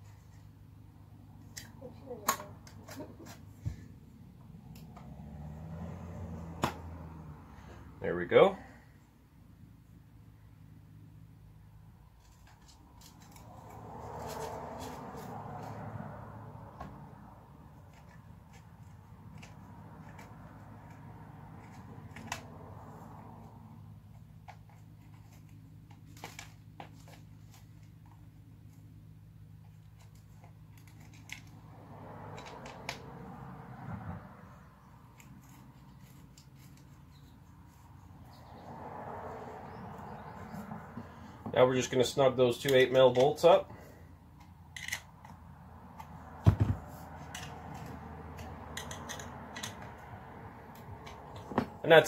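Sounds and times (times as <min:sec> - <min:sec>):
metal clicks and scrapes: 0:44.4 - 0:46.1, 0:47.2 - 0:50.0.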